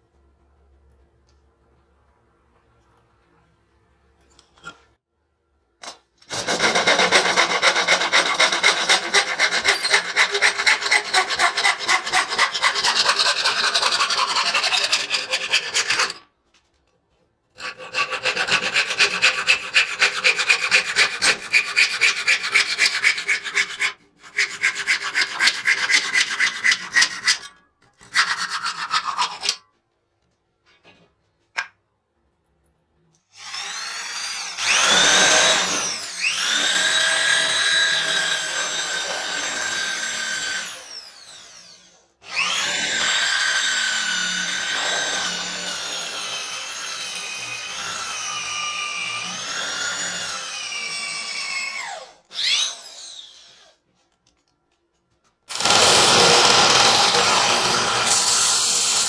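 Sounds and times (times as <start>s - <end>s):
hand saw cutting wood: 6.2s - 16.3s, 17.5s - 29.6s, 33.4s - 53.7s, 55.5s - 59.0s
electric drill boring into wood: 33.4s - 53.7s, 55.5s - 59.0s.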